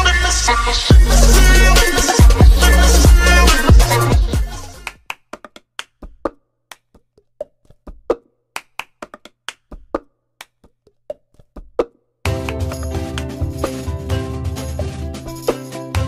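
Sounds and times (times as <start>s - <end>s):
intro music: 0.0s - 4.8s, 12.3s - 16.0s.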